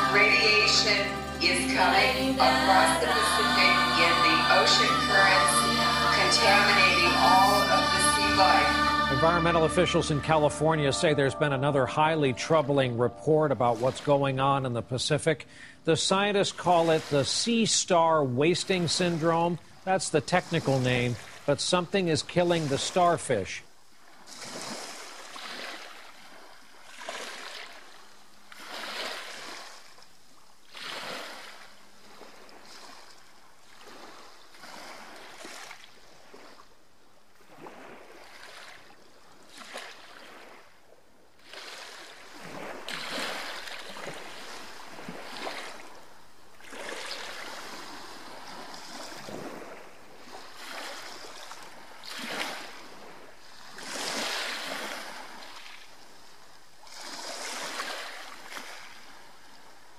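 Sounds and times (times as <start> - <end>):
water washing in like surf: 15.5 - 23.2, 41.4 - 56.0, 56.8 - 59.2.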